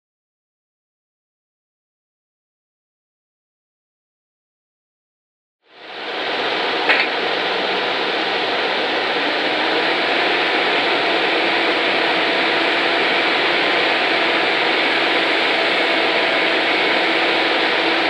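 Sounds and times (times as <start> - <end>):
diesel engine running: 5.9 - 18.0.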